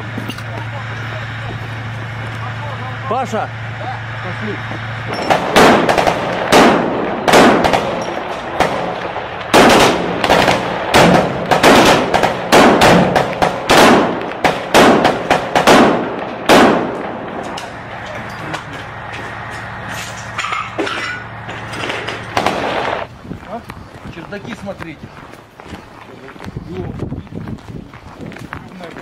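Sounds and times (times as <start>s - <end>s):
low steady drone: 0.0s - 23.1s
rifle shots: 5.1s - 18.1s, 18.8s - 23.1s.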